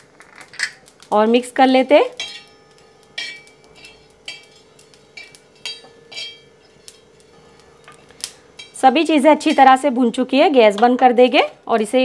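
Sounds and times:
faint steady hum: 0:00.0 - 0:12.0
metal spatula scraping iron pan: 0:02.2 - 0:08.8.

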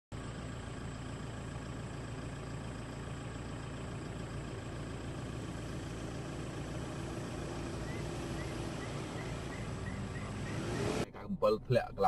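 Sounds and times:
vehicle engine running: 0:00.1 - 0:12.0.

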